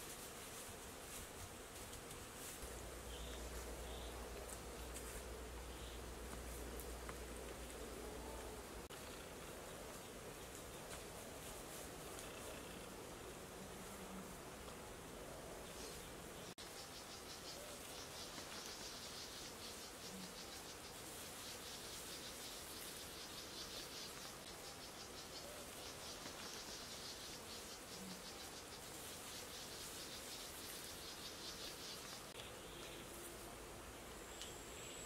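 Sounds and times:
insects chirring: 16.6s - 33.2s.

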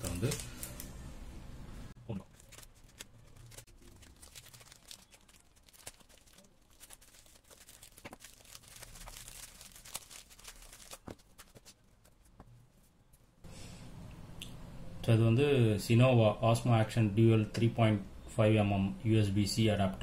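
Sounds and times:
plastic wrapping crinkling and tearing: 0.0s - 0.9s, 2.1s - 12.2s.

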